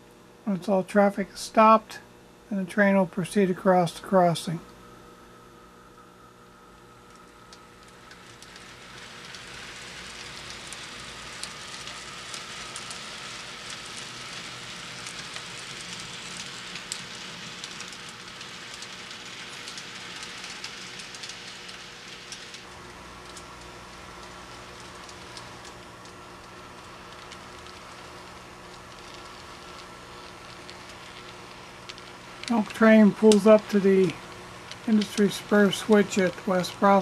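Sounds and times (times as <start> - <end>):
model train wheels rattling: 28.9 - 37.0.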